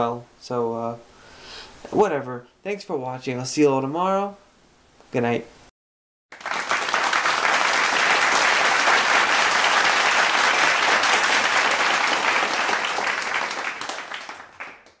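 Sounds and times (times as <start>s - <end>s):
audience applauding: 6.3s - 15.0s.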